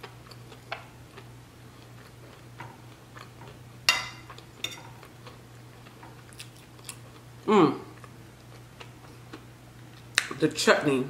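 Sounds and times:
metal fork clinking on plate: 3.9s - 5.0s.

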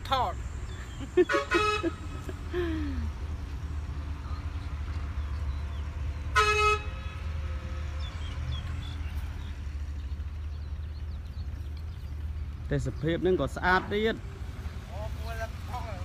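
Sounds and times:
diesel truck engine idling: 0.0s - 16.0s
truck horn toot: 1.2s - 2.3s, 6.3s - 7.8s.

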